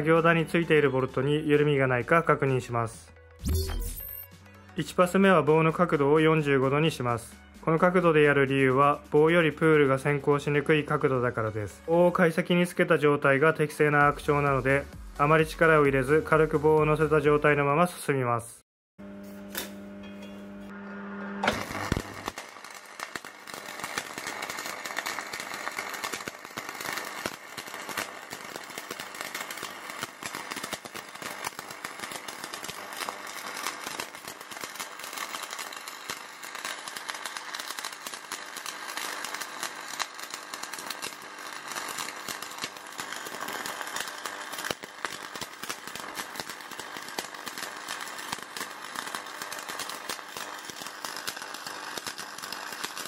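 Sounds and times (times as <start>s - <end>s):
arc welding crackle and hiss: 19.2s - 19.8s, 20.7s - 53.0s.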